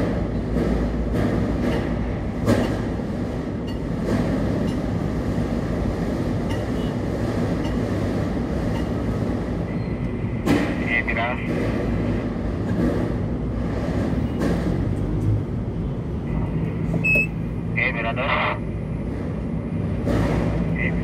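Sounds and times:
constant hum: 0:14.3 - 0:21.0.

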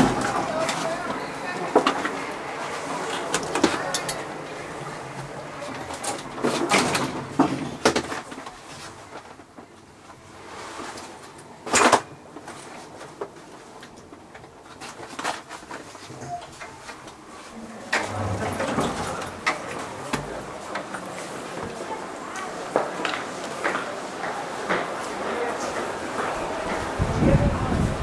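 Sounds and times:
steady background noise: 0:00.0 - 0:28.0
knocks clicks and clatter: 0:05.2 - 0:09.6, 0:17.9 - 0:21.8.

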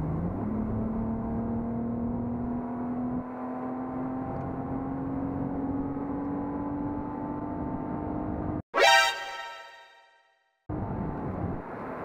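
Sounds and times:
low road rumble: 0:00.0 - 0:08.6.

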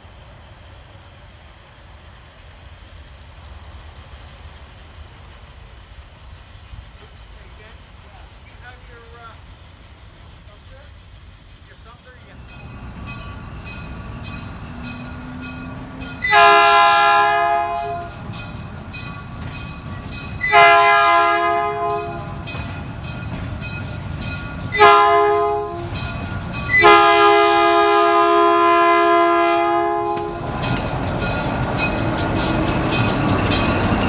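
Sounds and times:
locomotive engine rumble: 0:00.0 - 0:34.0
locomotive air horn blasts: 0:16.2 - 0:18.2, 0:20.4 - 0:22.4, 0:24.7 - 0:25.9, 0:26.7 - 0:30.5.

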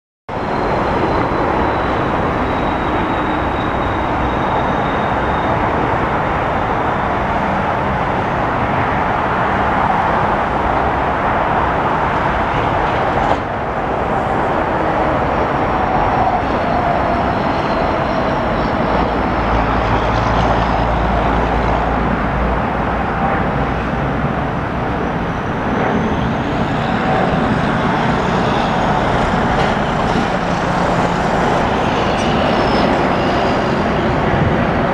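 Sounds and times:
jetliner roaring overhead: 0:00.3 - 0:34.9
road traffic noise: 0:00.3 - 0:34.9.

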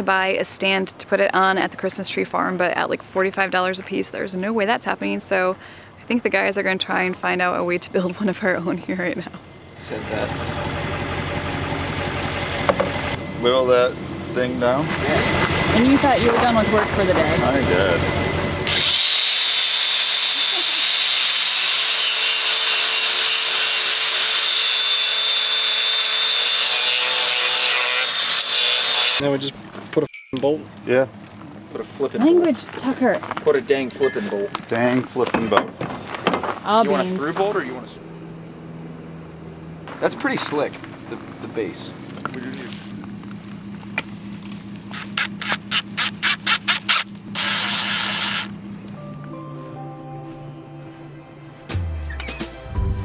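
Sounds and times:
steady low hum: 0:00.0 - 0:18.7, 0:36.7 - 0:49.2
angle grinder grinding wood: 0:14.4 - 0:29.4, 0:40.0 - 0:49.0
cordless drill boring into wood: 0:18.6 - 0:29.2, 0:44.9 - 0:48.6.

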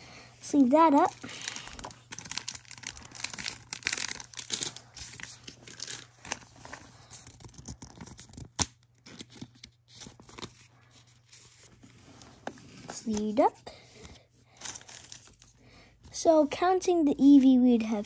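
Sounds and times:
plastic sleeve crinkling: 0:00.6 - 0:13.5, 0:14.5 - 0:15.6.

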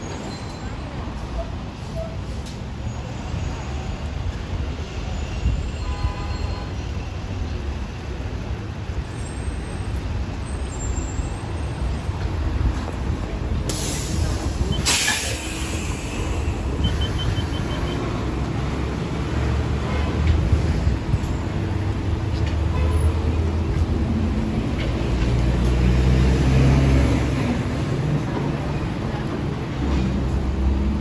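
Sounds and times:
bus engine rumbling: 0:00.0 - 0:31.0
air brakes hissing: 0:13.6 - 0:16.9
short high beeps: 0:16.8 - 0:18.1.

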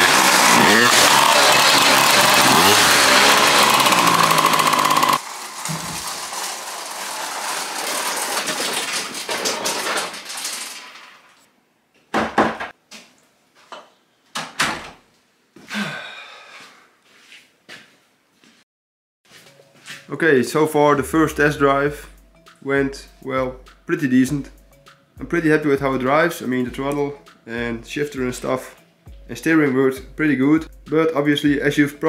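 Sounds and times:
two-stroke engine running: 0:00.0 - 0:08.2
rolling noise: 0:00.0 - 0:11.4.

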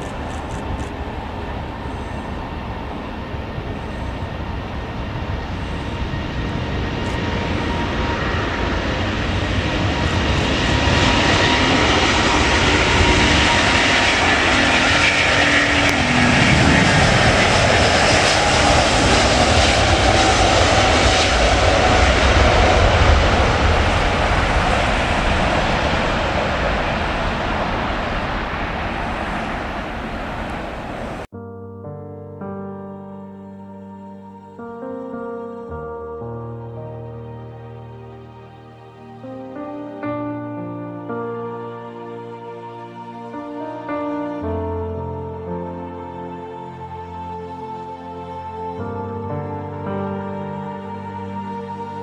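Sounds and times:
jet engines roaring on take-off: 0:00.0 - 0:31.3.

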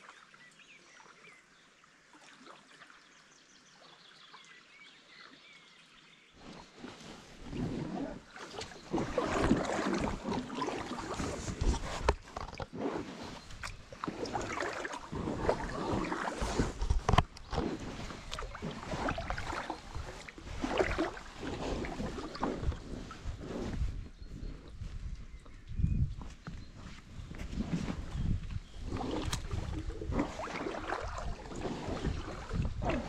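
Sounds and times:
paddle splashing water: 0:06.4 - 0:25.6, 0:26.2 - 0:33.0.

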